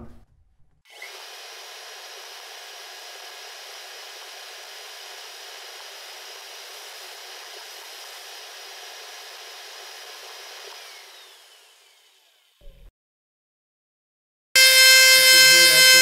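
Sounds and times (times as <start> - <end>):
spindle winding down: 14.6 - 16.0.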